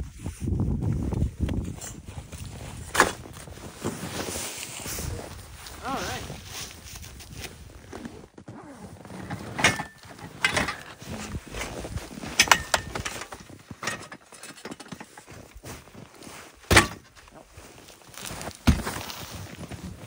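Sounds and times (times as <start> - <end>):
metal frames clicking and knocking: 9.2 - 11.4, 12.2 - 15.3.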